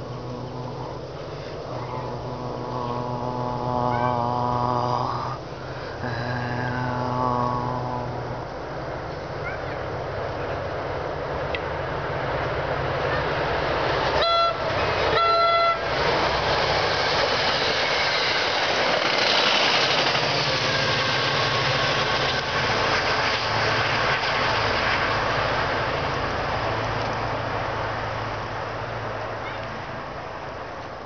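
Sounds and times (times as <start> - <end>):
locomotive engine: 0.0 - 31.0
train cars rolling over rails: 0.0 - 31.0
locomotive horn blasts: 14.1 - 16.1.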